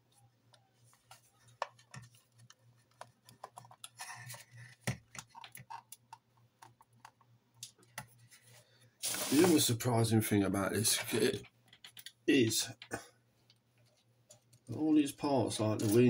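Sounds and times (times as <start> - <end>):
plastic model parts clicking and tapping: 1.5 - 8.1, 11.0 - 12.9.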